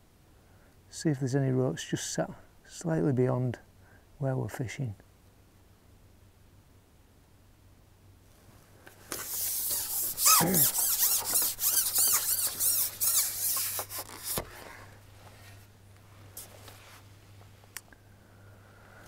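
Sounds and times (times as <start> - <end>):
fishing pole sections scraping: 9.1 - 14.7
short falling squeak: 9.4 - 14.4.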